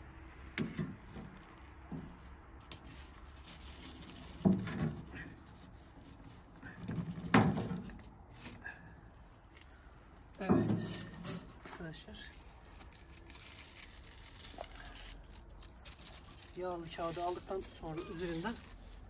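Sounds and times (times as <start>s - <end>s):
tin can clunks and knocks: 4.4s - 5.0s, 6.8s - 8.0s.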